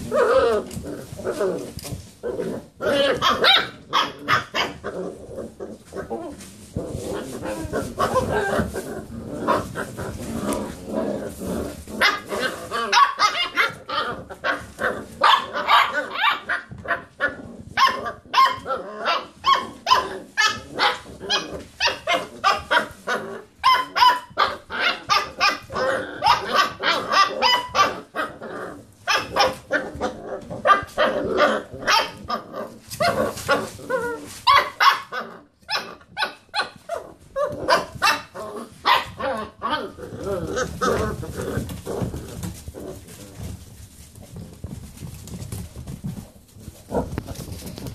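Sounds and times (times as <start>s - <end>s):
puppies barking: 2.6s - 6.2s, 7.0s - 43.1s.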